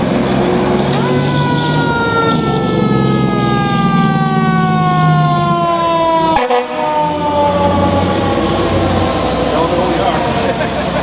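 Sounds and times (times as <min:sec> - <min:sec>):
truck engine running: 0:00.0 - 0:06.3
mechanical siren winding down: 0:00.5 - 0:09.2.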